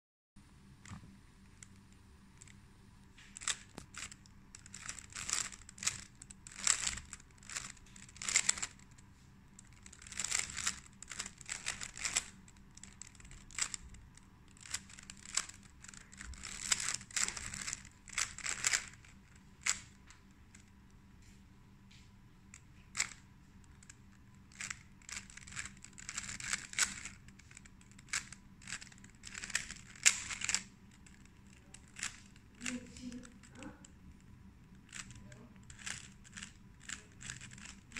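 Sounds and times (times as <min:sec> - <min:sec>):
plastic puzzle cube clicking: 0:03.3 - 0:20.0, 0:22.5 - 0:37.9.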